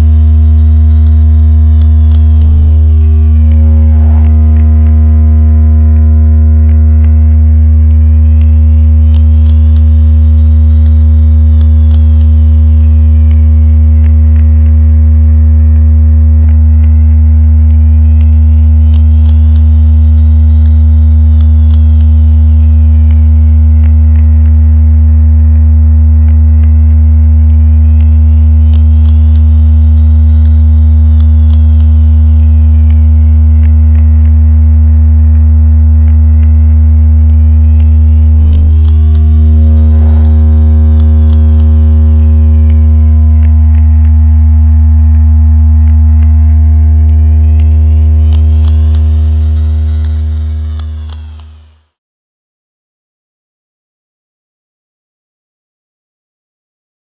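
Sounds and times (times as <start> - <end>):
steady high electronic tones: 0.0 - 14.0, 26.9 - 51.8
electronic low hum: 0.0 - 52.0
gliding high tone: 1.2 - 9.5, 37.6 - 44.7.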